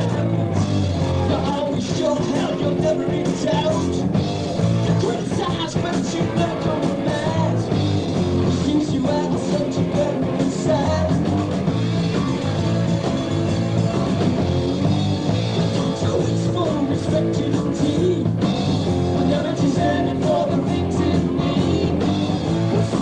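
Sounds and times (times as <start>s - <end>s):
live rock band playing: 0.0s - 23.0s
person singing: 1.1s - 4.1s, 4.9s - 7.8s, 8.4s - 11.2s, 15.6s - 18.4s, 19.2s - 23.0s.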